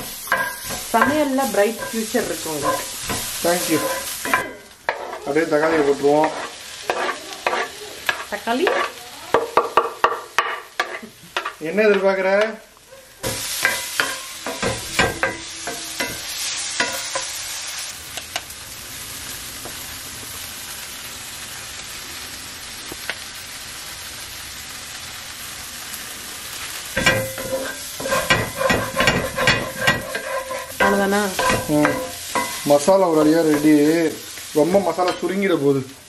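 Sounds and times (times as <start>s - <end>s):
wooden spatula scraping: 0.0s - 9.0s, 27.0s - 34.0s
vegetables sizzling in a skillet: 0.0s - 36.0s.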